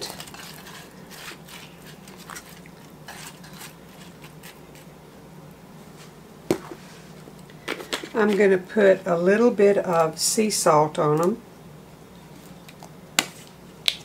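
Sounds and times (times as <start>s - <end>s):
potatoes rustling and knocking in dish: 0.0s - 5.0s, 5.9s - 8.7s.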